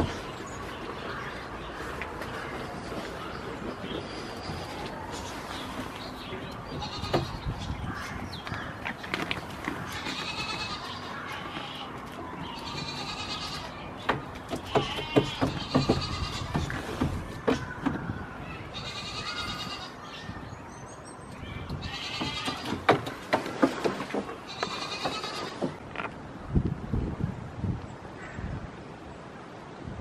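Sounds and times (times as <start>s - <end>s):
goat kid bleating: 6.7s - 7.8s, 9.9s - 13.8s, 14.7s - 16.6s, 18.7s - 20.0s, 21.8s - 22.7s, 24.5s - 25.6s.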